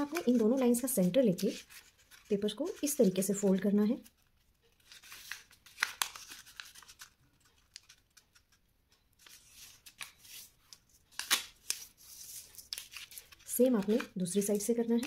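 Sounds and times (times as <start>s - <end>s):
paper rustling and crackling: 0.0s - 8.6s, 9.2s - 15.0s.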